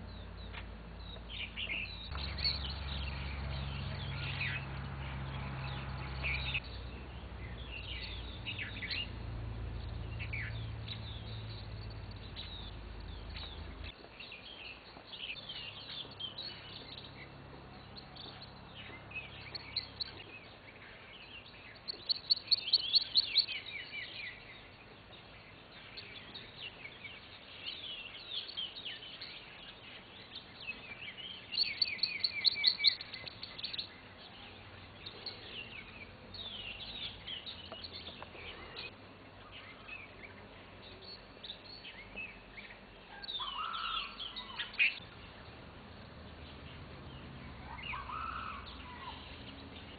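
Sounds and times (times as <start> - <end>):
songbirds chirping: 0.0 - 49.9
low bird call: 47.5 - 49.6.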